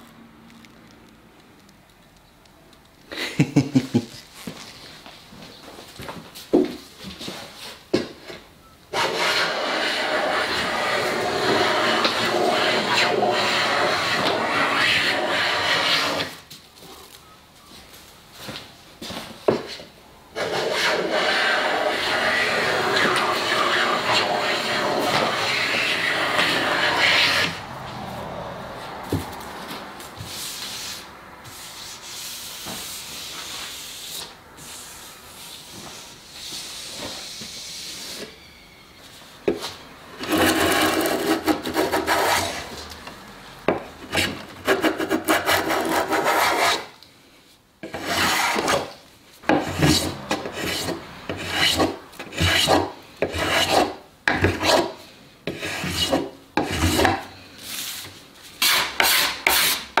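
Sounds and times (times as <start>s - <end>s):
hand plane shaving wood: 8.9s - 16.4s, 20.4s - 27.6s, 40.2s - 42.8s, 44.0s - 46.9s, 47.8s - 57.3s, 58.6s - 59.8s.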